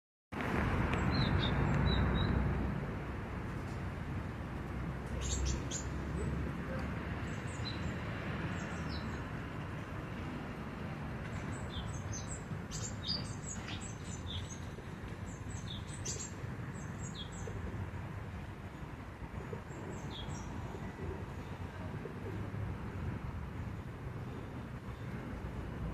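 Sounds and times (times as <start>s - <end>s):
small birds chirping: 5.1s - 6.0s, 11.3s - 17.6s, 19.7s - 20.7s.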